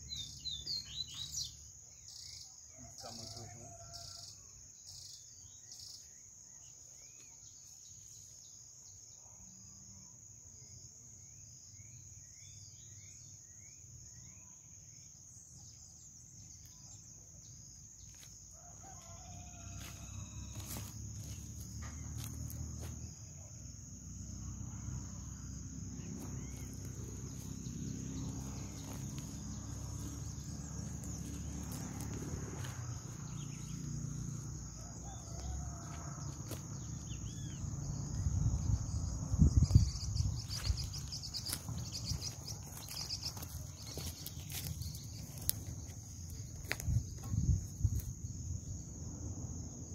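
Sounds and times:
small birds chirping: 0.0 - 2.5, 26.0 - 34.0, 36.8 - 47.6
rooster crowing: 2.7 - 4.5, 18.5 - 20.9, 26.8 - 37.4
low rumbling noise: 24.9 - 34.8.

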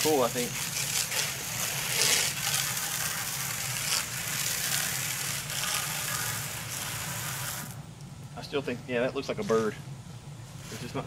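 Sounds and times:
hose water spraying on board: 0.0 - 7.8.

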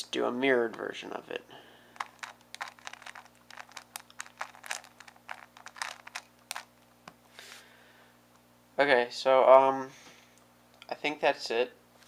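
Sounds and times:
puzzle cube plastic clicks: 2.0 - 6.7.

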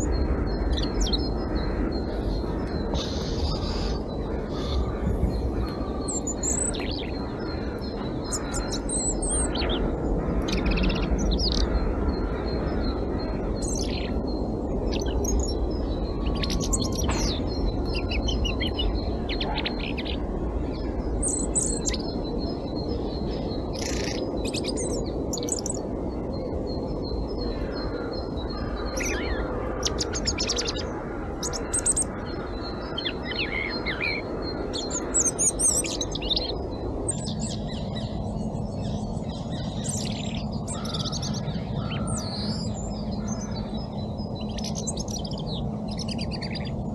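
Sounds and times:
low background rumble: 0.0 - 46.9
robin singing: 26.7 - 46.8.

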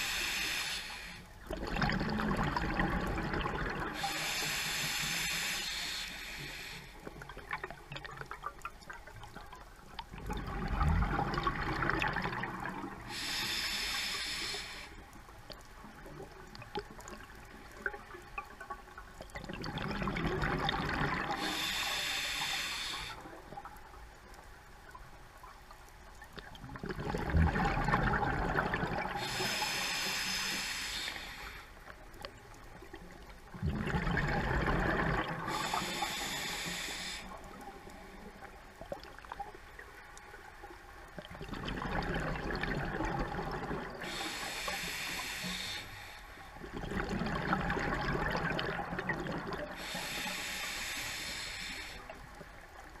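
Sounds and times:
regulator hiss: 0.0 - 1.3, 4.0 - 7.0, 13.0 - 15.0, 21.4 - 23.2, 29.2 - 31.8, 35.5 - 37.6, 44.0 - 46.4, 49.8 - 52.2
exhaled bubbles rumbling: 1.4 - 4.0, 7.2 - 13.1, 19.2 - 21.4, 26.3 - 29.3, 32.7 - 35.8, 41.1 - 44.2, 46.6 - 49.9.

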